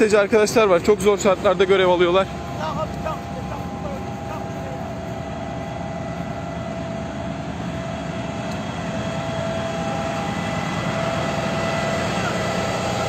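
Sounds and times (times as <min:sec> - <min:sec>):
truck engine running with whine: 0:00.0 - 0:13.0.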